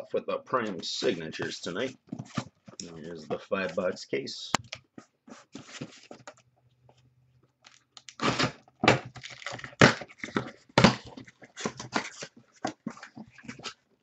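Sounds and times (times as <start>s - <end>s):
cardboard boxes scraping and knocking: 1.8s - 4.0s, 5.0s - 6.3s, 8.2s - 13.8s.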